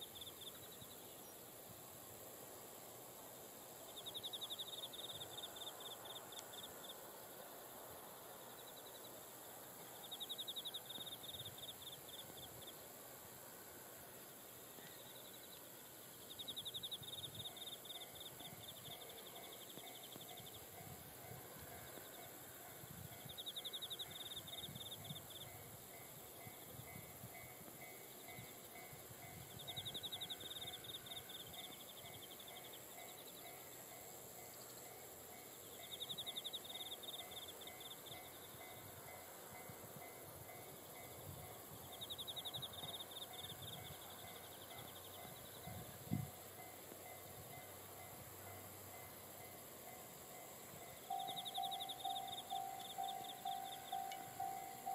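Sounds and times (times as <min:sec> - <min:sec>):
insect pulsed trill: 0:00.0 - 0:54.9.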